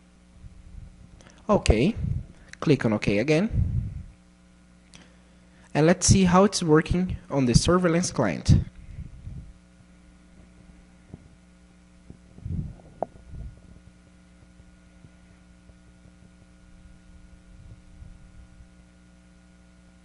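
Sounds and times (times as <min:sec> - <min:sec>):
electrical mains hum: 0:00.0 - 0:20.0
soft low thumps: 0:00.4 - 0:02.4, 0:03.5 - 0:04.2, 0:08.5 - 0:18.9.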